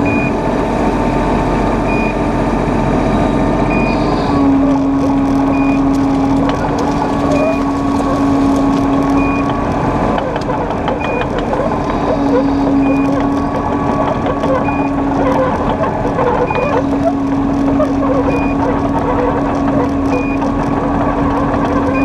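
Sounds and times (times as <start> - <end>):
excavator engine and hydraulics: 0.0 - 22.0
short warning beeps: 3.7 - 4.4.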